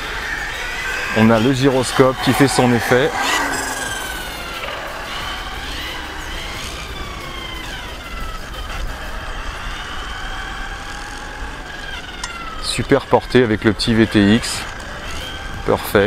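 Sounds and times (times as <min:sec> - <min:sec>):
electric motor whining: 0:00.0 - 0:11.6.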